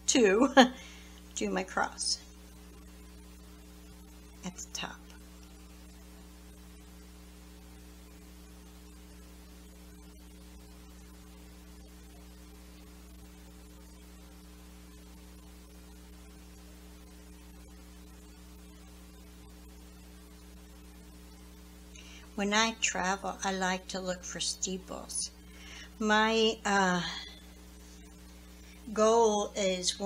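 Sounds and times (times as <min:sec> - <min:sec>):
electrical mains hum: 0:00.0 - 0:30.0
faint hiss: 0:25.2 - 0:29.5.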